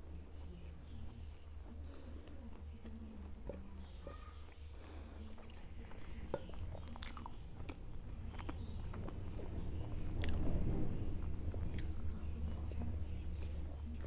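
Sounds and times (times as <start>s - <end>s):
steady low hum: 0.0s - 14.0s
person biting and chewing food: 6.3s - 9.5s.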